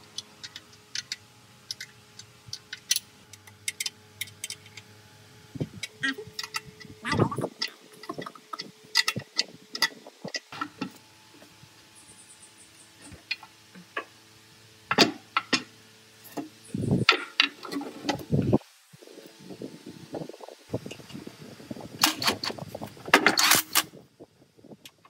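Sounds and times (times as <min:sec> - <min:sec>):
metal parts and tools clinking: 0:05.8 - 0:10.6.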